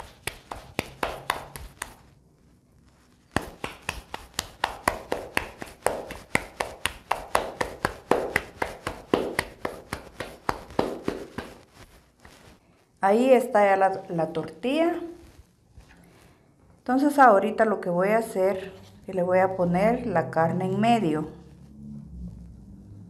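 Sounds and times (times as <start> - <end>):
hands patting dough: 0.0 - 2.2, 2.9 - 12.6.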